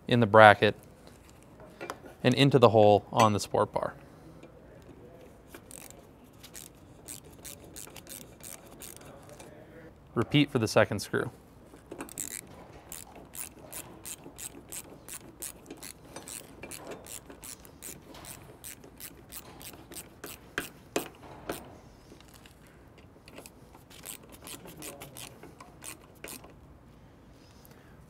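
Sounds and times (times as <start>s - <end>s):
ratcheting screwdriver clicking: 5.6s - 9.1s, 11.9s - 21.6s, 23.2s - 26.6s.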